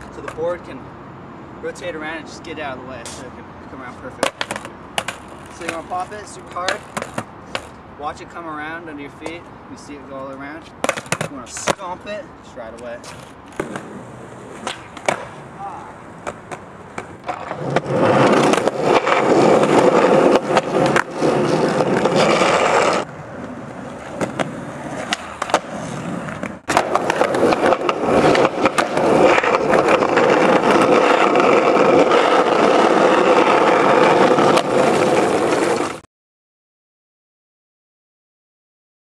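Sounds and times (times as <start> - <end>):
skateboard clacks: 0.0 - 0.4, 4.2 - 7.7, 10.8 - 12.0, 12.7 - 15.4, 16.2 - 36.0
skateboard wheels rolling on concrete: 0.0 - 36.0.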